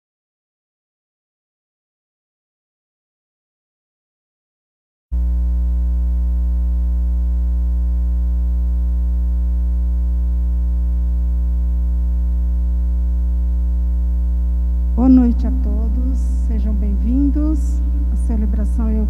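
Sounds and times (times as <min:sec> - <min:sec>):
electrical mains hum: 0:05.2 - 0:19.0.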